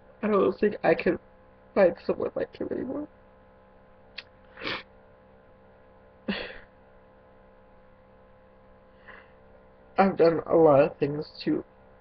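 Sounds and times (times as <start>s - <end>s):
low electrical hum: 0.0s - 12.0s
person crying and sniffling: 4.6s - 4.9s, 6.3s - 6.7s.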